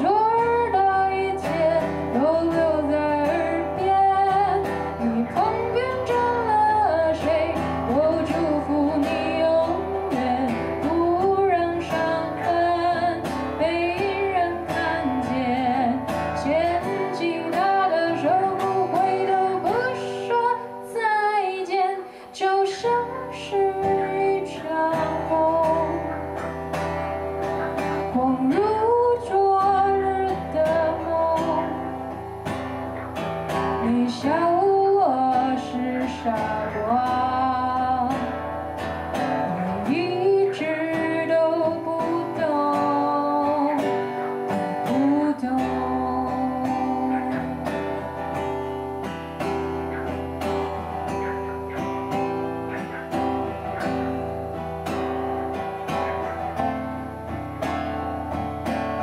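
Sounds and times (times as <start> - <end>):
woman singing: 0.0 - 26.8, 27.8 - 32.5, 33.5 - 48.9
acoustic guitar: 0.0 - 59.0.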